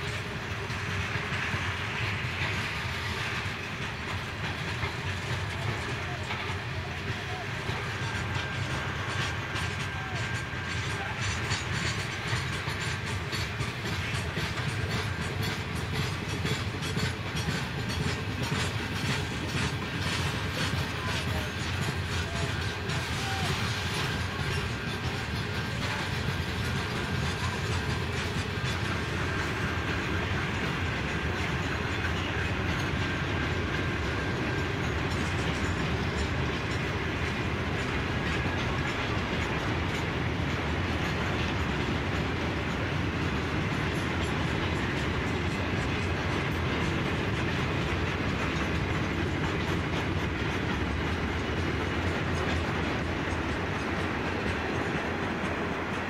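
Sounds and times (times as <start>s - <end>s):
train wagons rolling past: 0.0s - 56.0s
wheels clicking over rail joints: 0.0s - 56.0s.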